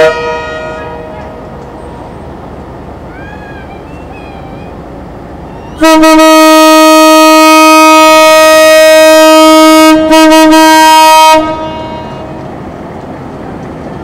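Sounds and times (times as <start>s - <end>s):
diesel locomotive horn blasts: 0.0s - 1.4s, 5.8s - 12.5s.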